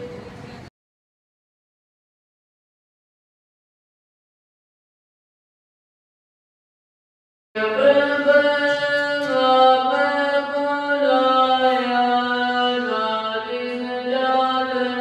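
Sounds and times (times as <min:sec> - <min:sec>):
person chanting long held notes: 0:07.6 - 0:15.0.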